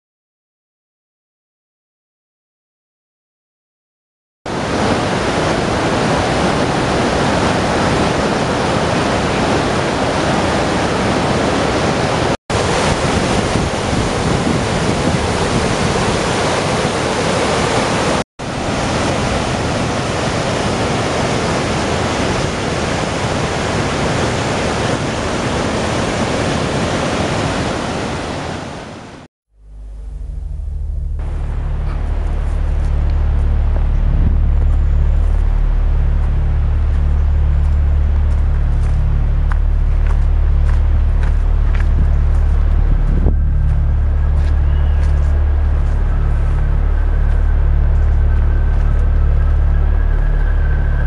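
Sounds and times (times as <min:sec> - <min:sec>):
water rushing over rocks: 0:04.5 - 0:29.3.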